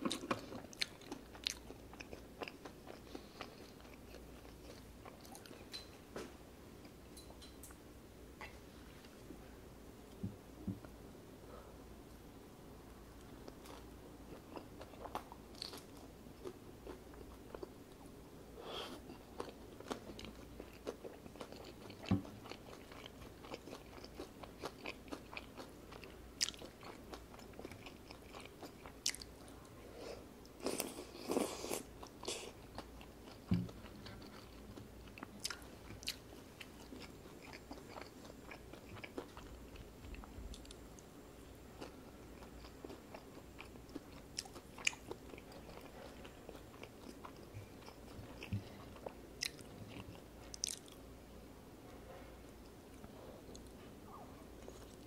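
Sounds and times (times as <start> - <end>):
close-miked chewing: 0.0 - 5.9, 13.2 - 18.1, 18.8 - 29.8, 30.4 - 51.1.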